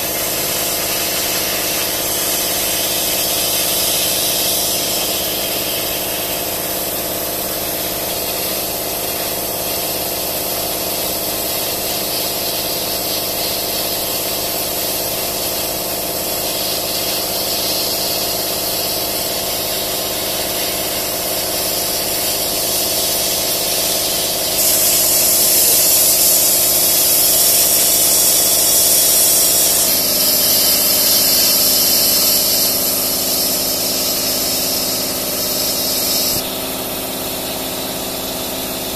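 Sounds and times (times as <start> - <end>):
airy hiss: 0.0 - 9.2, 13.2 - 36.5
laser cutter fans humming: 0.0 - 10.5, 12.3 - 38.9.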